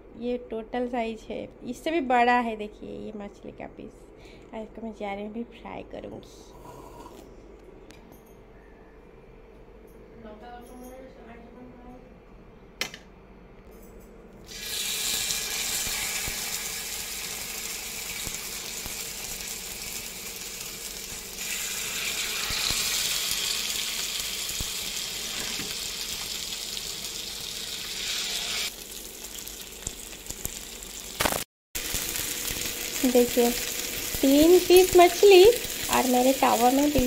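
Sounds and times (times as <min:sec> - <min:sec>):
fish sizzling in hot oil: 0:14.5 - 0:37.0.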